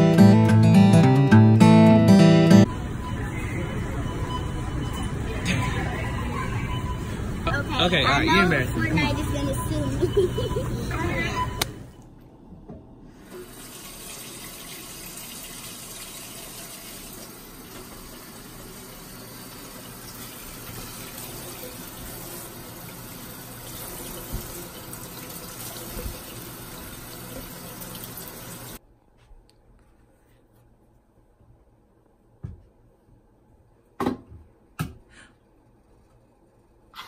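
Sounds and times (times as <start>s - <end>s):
faucet running into metal sink: 13.3s - 28.8s.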